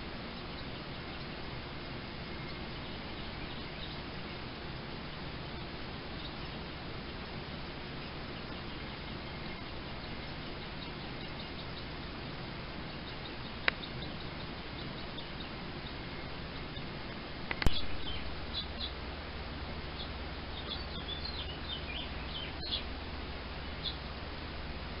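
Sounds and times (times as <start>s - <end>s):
background hiss: 0.0s - 25.0s
nestling birds cheeping: 0.0s - 25.0s
small click: 17.5s - 17.9s.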